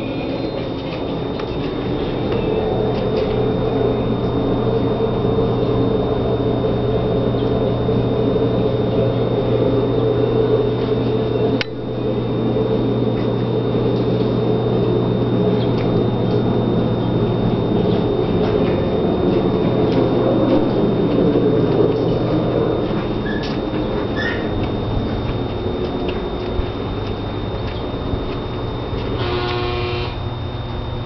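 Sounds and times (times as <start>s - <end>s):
mechanical hum: 0.0s - 31.0s
thin high whine: 0.0s - 31.0s
click: 11.6s - 11.8s.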